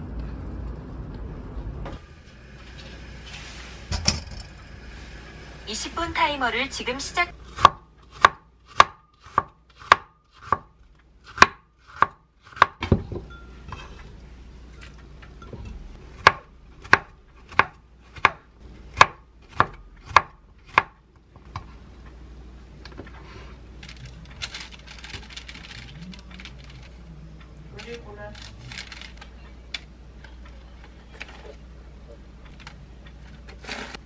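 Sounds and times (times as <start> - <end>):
knife chopping on wooden board: 7.5 - 13.0, 16.2 - 21.0.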